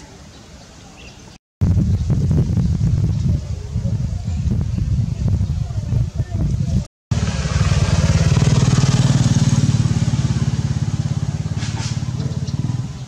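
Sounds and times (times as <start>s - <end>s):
small engine running: 7.1s - 13.0s.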